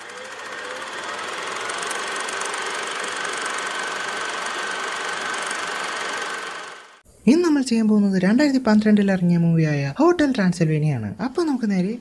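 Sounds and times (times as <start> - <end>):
film projector clatter: 0.0 - 7.0.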